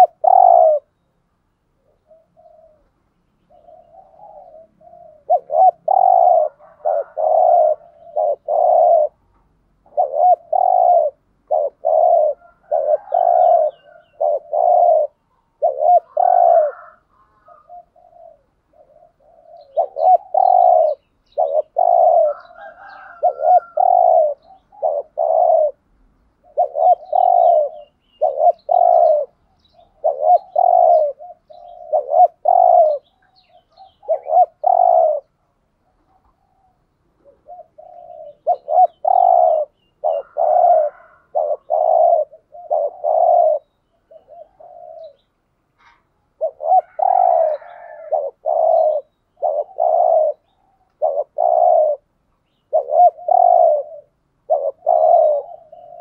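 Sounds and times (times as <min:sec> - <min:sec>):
dove cooing: 0:00.0 - 0:01.0, 0:01.7 - 0:56.0
faint small bird chirps: 0:26.5 - 0:56.0.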